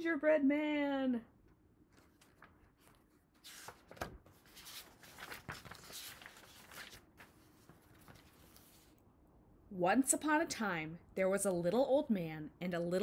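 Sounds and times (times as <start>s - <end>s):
book pages rustling: 1.8s - 9.0s.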